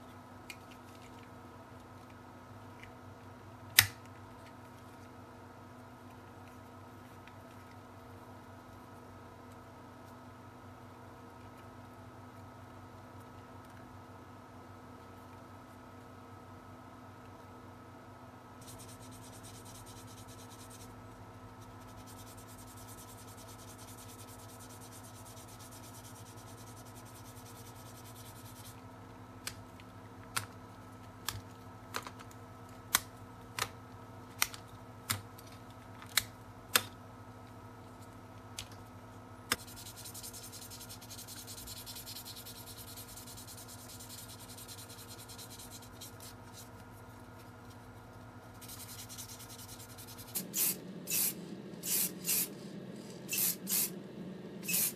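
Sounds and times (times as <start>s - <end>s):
sanding pad rubbing plastic: 48.5s - 52.5s.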